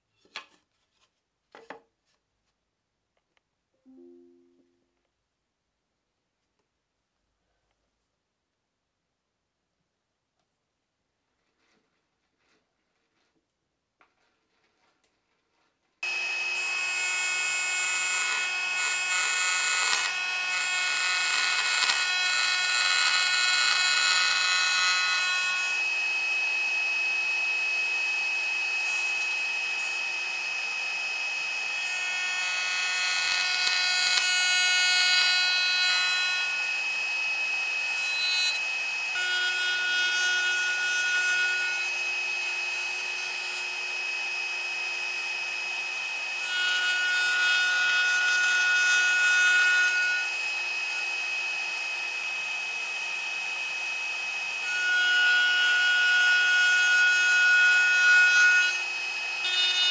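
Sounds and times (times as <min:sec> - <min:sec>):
bit cutting wood: 0:16.0 - 0:59.9
router spindle whine: 0:16.0 - 0:59.9.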